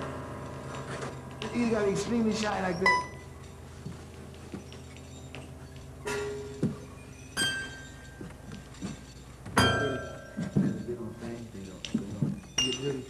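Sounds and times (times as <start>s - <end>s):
ringing clinks: 0.0s - 13.0s
soft knocks: 8.2s - 11.0s.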